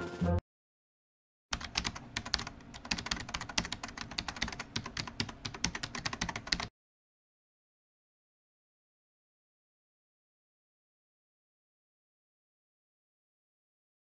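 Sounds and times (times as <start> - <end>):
keyboard typing clicks: 1.5 - 6.7.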